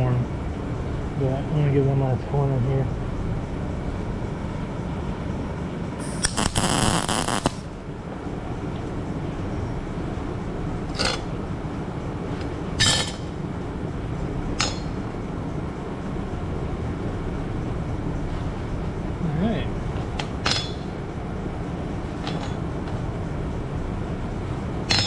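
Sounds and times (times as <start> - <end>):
crackling welding arc: 6.0 - 7.9.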